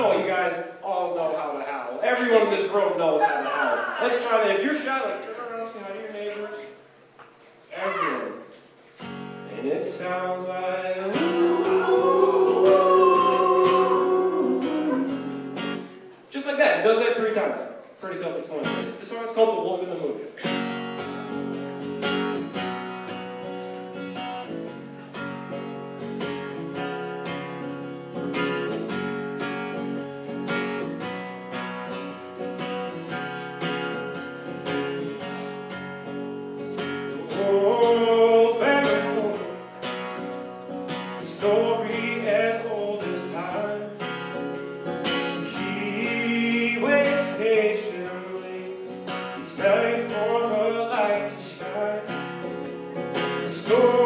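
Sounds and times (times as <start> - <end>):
acoustic guitar strummed and picked: 8.8 - 16.3, 20.4 - 54.0
man singing: 9.9 - 16.1, 37.1 - 39.6, 41.2 - 44.0, 45.0 - 52.2, 53.2 - 54.0.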